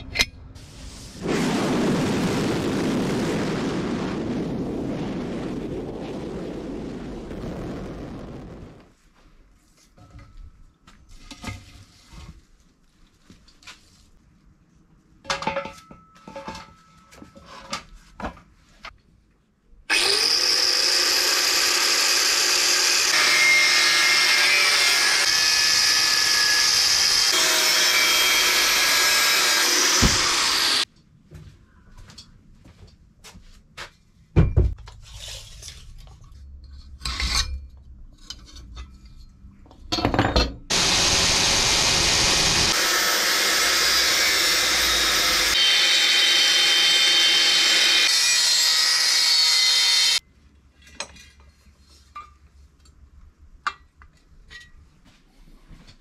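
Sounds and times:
power tools cutting metal: 19.9 - 30.8, 40.7 - 50.2.

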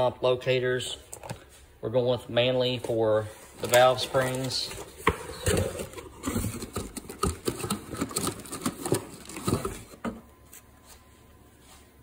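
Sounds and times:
cardboard box and plastic tray handling: 3.5 - 10.2.

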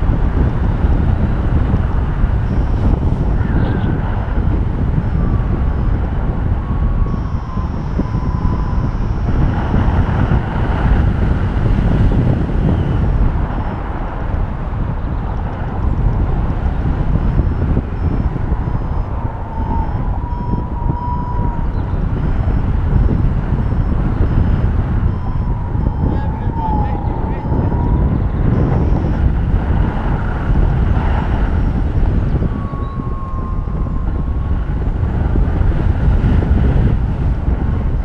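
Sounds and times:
wind rushing over microphone: 0.0 - 38.0
variometer beeping: 2.4 - 6.0, 6.8 - 10.4, 16.8 - 30.8.

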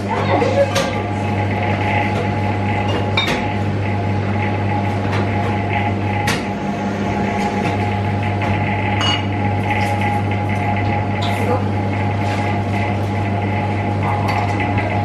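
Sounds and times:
vending machine humming: 0.0 - 15.0.

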